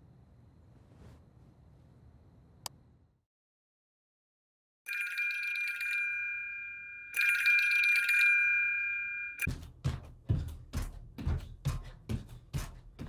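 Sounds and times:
telephone ringtone trilling: 4.9 - 9.5
music beat with low thumps: 9.5 - 13.0.

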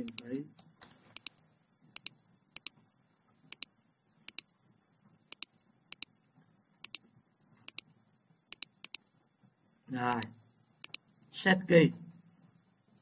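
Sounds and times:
computer mouse clicking: 0.0 - 1.4, 2.0 - 2.8, 3.5 - 3.7, 4.3 - 4.5, 5.3 - 6.2, 6.8 - 7.0, 7.7 - 7.9, 8.5 - 9.1, 10.1 - 11.1
faint low hum: 0.0 - 13.0.

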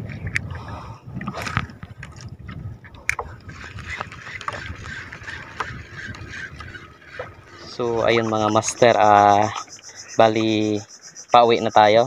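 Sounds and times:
wind on microphone: 0.0 - 12.0
water slapping against boat hull: 1.2 - 9.7.

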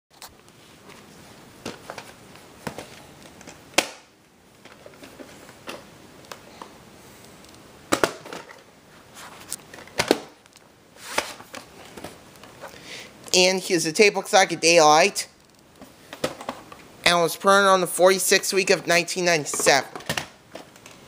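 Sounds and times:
cassette handling in cardboard sleeve: 7.9 - 12.8.

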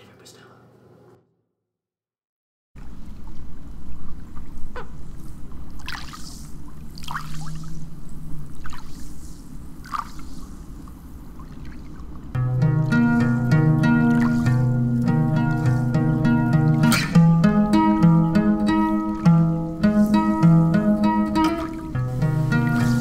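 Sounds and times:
soft splashes: 2.8 - 12.3, 21.4 - 22.0
water lapping and trickling: 2.8 - 16.9, 18.6 - 23.0
plucked-string music: 12.4 - 23.0.

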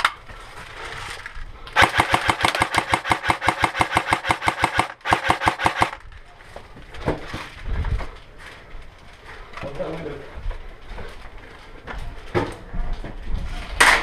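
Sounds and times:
airsoft rifle firing full auto: 1.8 - 6.0.

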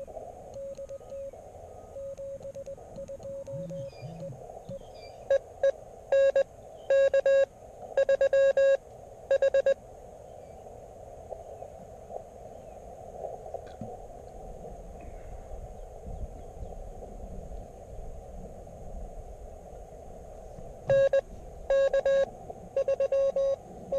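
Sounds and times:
faint radio tones: 0.0 - 23.9
radio receiver hiss: 0.0 - 23.9
morse code beeps: 0.5 - 1.3, 1.9 - 9.8, 20.9 - 23.6.

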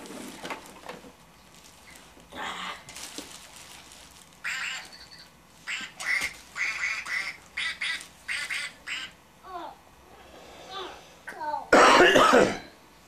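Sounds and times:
toy duck electronic quacks: 4.5 - 9.1.

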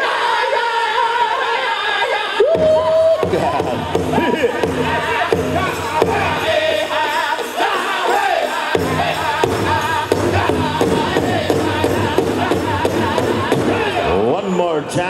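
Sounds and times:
group singing high melody: 0.0 - 14.4
steady drumbeat: 2.4 - 14.4.

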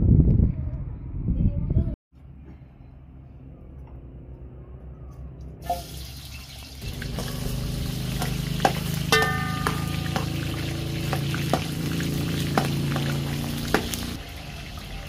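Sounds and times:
broth sloshing with ladle: 6.8 - 14.2.

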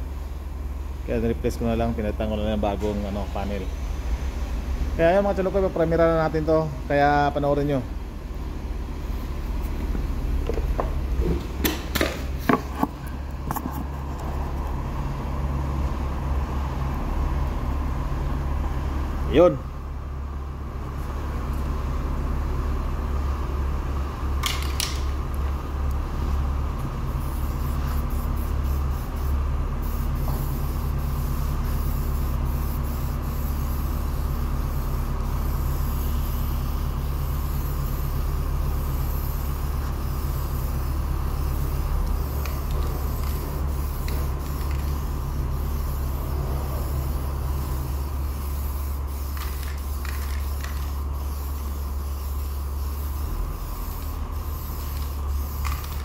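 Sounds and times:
steady low hum: 0.0 - 56.0
aerosol spray can hissing: 27.1 - 56.0.

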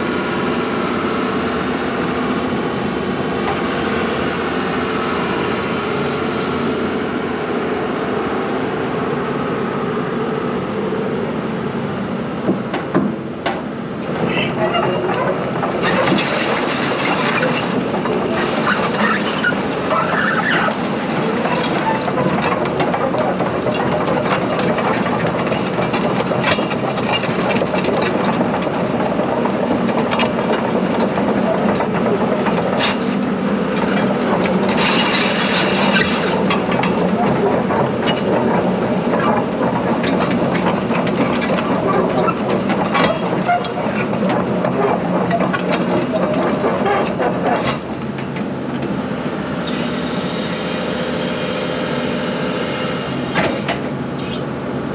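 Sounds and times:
excavator diesel engine running: 0.0 - 54.9
metal clanks and creaks: 12.7 - 48.9.

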